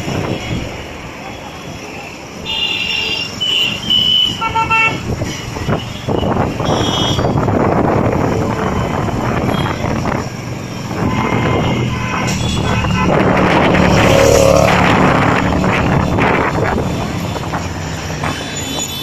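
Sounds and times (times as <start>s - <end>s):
traffic rumble: 0.0s - 19.0s
vehicle horns tooting: 2.4s - 7.5s, 10.9s - 13.8s.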